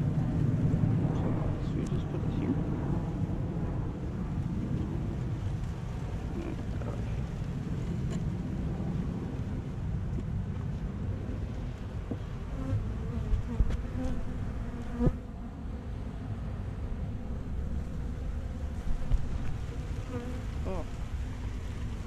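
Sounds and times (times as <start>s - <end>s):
honey bees buzzing: 12.4s - 22.0s.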